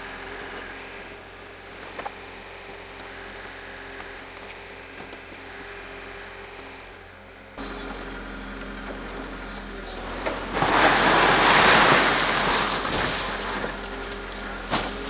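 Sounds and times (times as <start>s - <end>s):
excavator engine running: 0.0s - 15.0s
snow sliding off roof: 10.4s - 13.9s.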